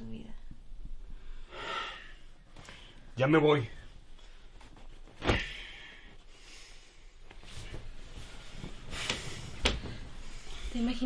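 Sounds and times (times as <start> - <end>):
bedsheets and clothing rustling: 2.4 - 11.0.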